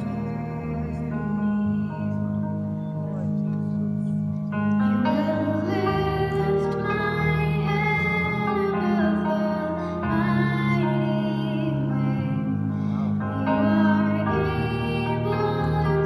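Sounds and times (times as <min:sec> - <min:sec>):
sustained low instrumental chords: 0:00.0 - 0:16.0
girl singing into a microphone: 0:04.8 - 0:16.0.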